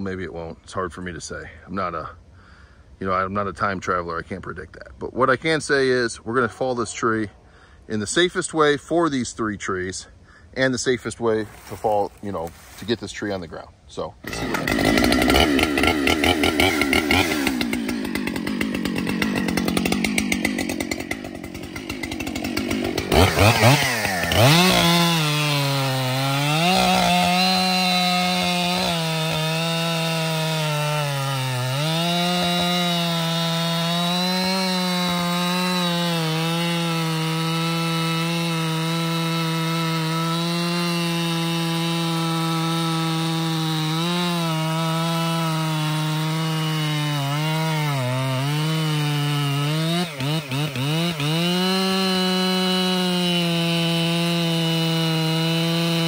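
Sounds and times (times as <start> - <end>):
chainsaw cutting wood: 14.2 - 56.0.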